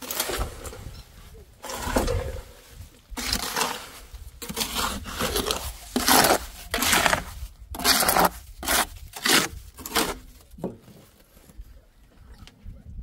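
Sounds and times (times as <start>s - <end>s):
rough scraping crunching strokes: 0.0s - 11.6s.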